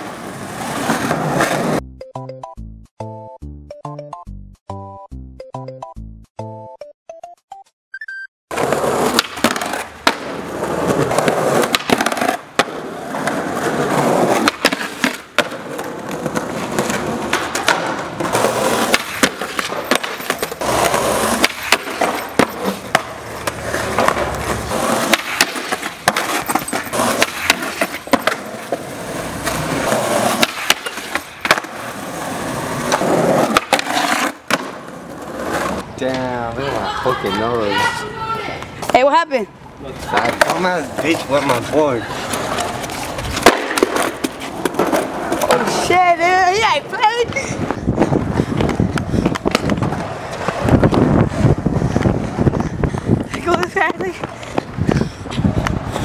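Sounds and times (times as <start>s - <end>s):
skateboard trucks grinding on concrete: 0.0s - 1.8s, 8.5s - 56.0s
skateboards rolling on rough pavement: 0.0s - 1.8s, 8.5s - 56.0s
skateboard tail pops and landings: 8.6s - 13.4s, 14.3s - 31.9s, 32.8s - 34.9s, 42.4s - 45.7s, 48.6s - 51.2s.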